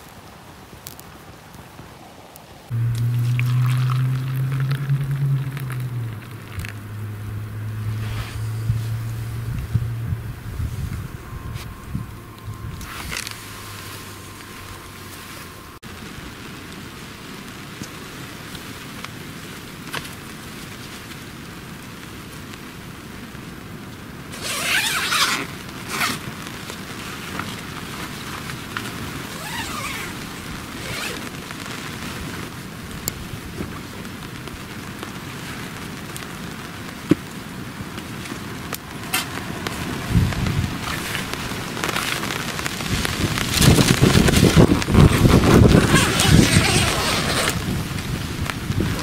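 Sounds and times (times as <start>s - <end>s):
rain hiss: 0.0s - 49.0s
tent zipper pulled open: 2.7s - 6.8s, 7.7s - 9.9s, 24.3s - 26.2s, 29.2s - 31.4s, 40.8s - 48.0s
wind buffeting microphone: 2.7s - 15.8s, 38.8s - 49.0s.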